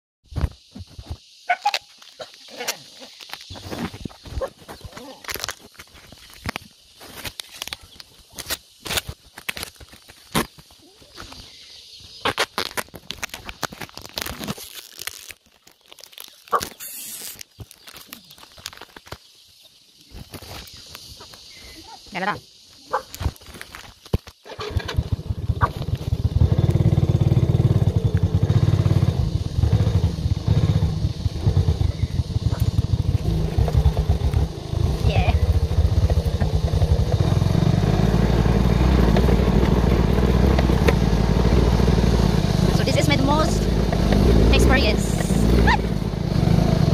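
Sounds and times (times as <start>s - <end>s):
motorcycle engine running: 24.5s - 46.9s.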